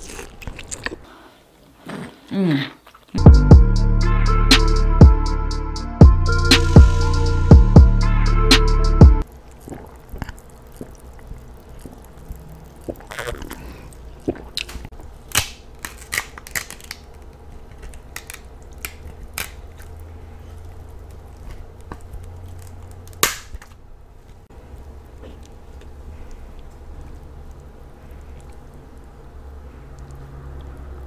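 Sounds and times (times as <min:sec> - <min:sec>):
close-up chewing and biting: 0:00.0 - 0:03.2, 0:09.3 - 0:23.3
crab shells cracking: 0:09.3 - 0:28.8.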